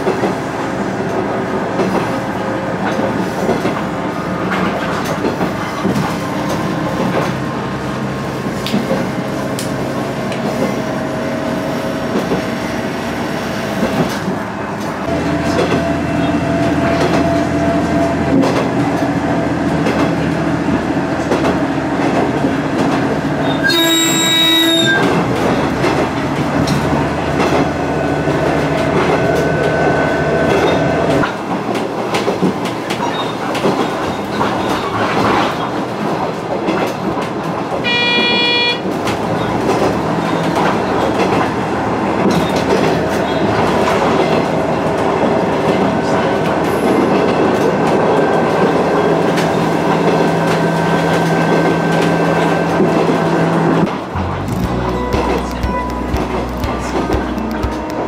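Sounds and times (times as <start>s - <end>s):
diesel railcar engine: 0.0s - 58.0s
train horn: 23.6s - 25.2s, 37.8s - 39.0s, 54.8s - 58.0s.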